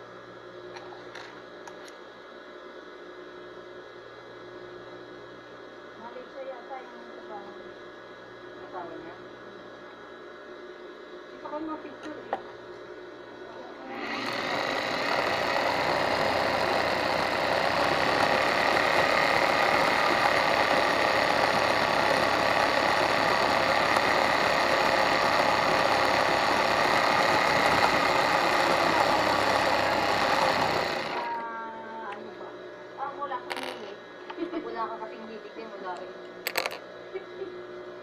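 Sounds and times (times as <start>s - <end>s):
electric sewing machine running: 13.8s - 31.4s.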